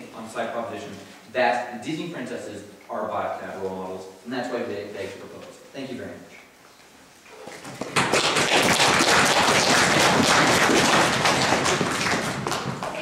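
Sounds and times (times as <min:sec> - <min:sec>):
audience applauding: 0:07.8 - 0:13.0.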